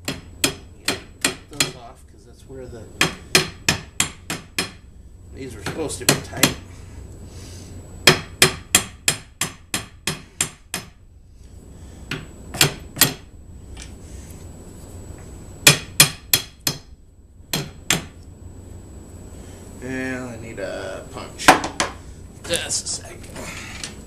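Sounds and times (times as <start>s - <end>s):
hammer tapping on metal: 0.0s - 1.9s, 3.0s - 4.8s, 5.6s - 6.6s, 8.0s - 11.0s, 15.6s - 16.9s, 17.5s - 18.2s.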